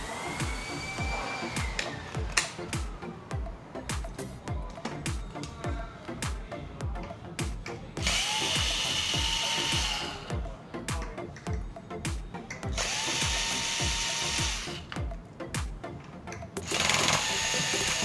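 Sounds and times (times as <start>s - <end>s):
background music with steady beat: 0.0s - 18.0s
electric screwdriver running: 8.0s - 10.3s, 12.8s - 14.8s, 16.6s - 18.0s.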